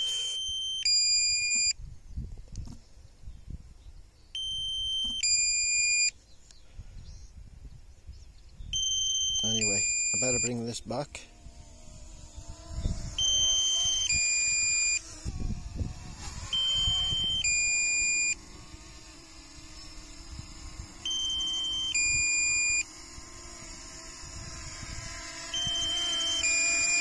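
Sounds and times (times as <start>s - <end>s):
two-tone electronic warning alarm: 4.4s - 6.1s, 8.8s - 10.6s, 13.1s - 15.2s, 16.4s - 23.2s, 23.8s - 27.0s
low wind rumble: 11.3s - 14.2s.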